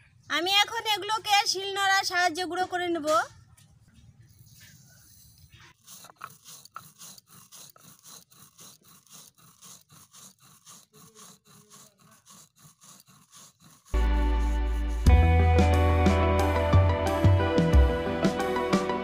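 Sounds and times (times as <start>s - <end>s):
stone grinding seeds: 4.3s - 15.1s
loud guitar music: 15.1s - 19.0s.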